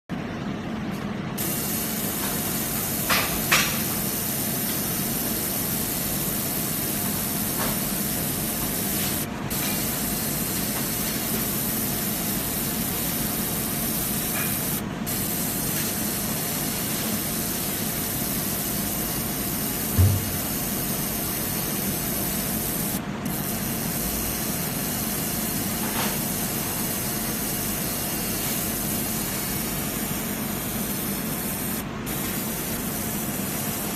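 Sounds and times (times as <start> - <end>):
laser engraver hissing: 1.4 - 33.9
short low thump: 20.0 - 20.4.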